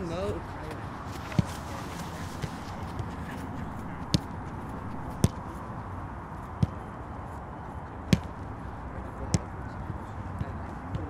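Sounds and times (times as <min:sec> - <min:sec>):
open-air background noise: 0:00.0 - 0:11.0
football kick thuds: 0:04.1 - 0:04.3, 0:05.1 - 0:05.5.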